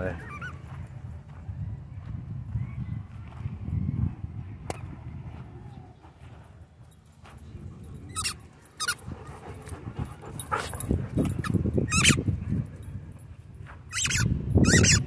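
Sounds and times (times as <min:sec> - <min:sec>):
squeaky ball squeaks: 0:00.2 - 0:00.7, 0:08.1 - 0:09.0, 0:11.4 - 0:12.2, 0:13.9 - 0:15.0.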